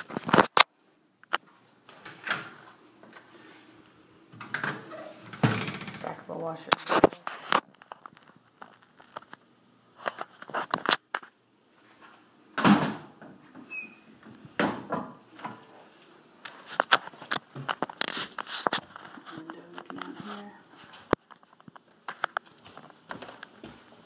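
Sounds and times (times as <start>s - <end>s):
closet door clicks and knocks: 4.4s - 6.1s, 12.6s - 15.6s.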